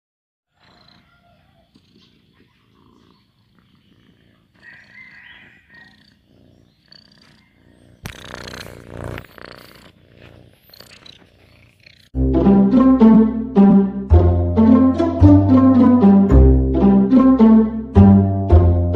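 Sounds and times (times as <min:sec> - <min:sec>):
cat purring: 0:00.5 - 0:12.2
plucked string music: 0:12.2 - 0:18.9.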